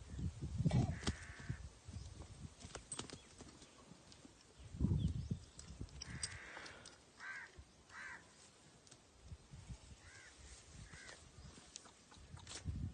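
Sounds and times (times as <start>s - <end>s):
crow cawing: 0.9s - 1.6s, 6.0s - 8.3s, 10.0s - 11.2s.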